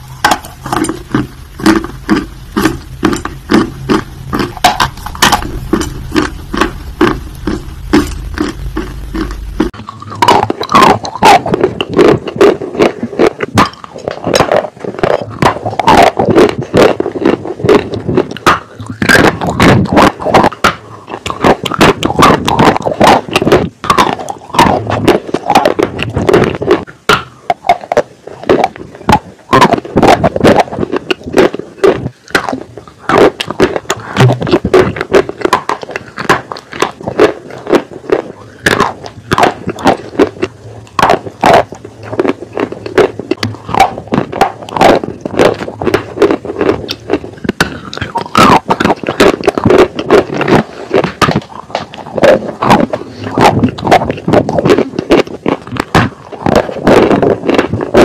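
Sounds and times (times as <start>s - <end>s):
clay being chewed crunching: 0.0s - 58.0s.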